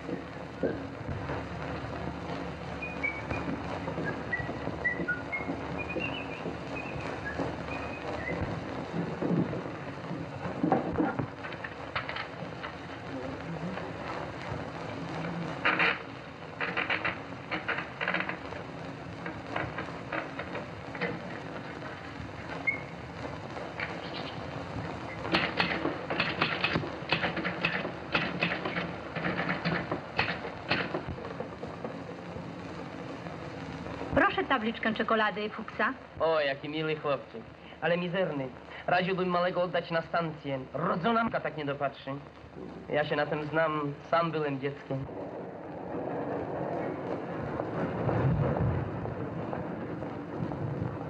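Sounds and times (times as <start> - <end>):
film soundtrack hiss and crackle: 0.0 - 51.0
knocks and rattles: 3.3 - 13.0, 15.5 - 22.6, 23.8 - 32.2.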